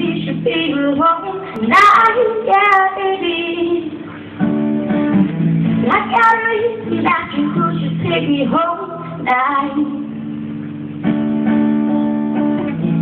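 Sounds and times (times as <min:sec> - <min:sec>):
woman singing: 0:00.0 - 0:04.2, 0:05.8 - 0:10.2
acoustic guitar chords: 0:00.0 - 0:13.0.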